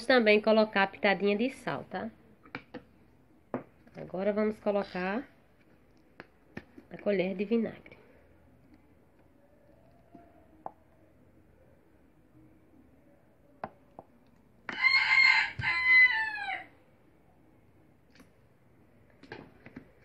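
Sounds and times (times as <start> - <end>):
rooster crowing: 14.7 - 16.8.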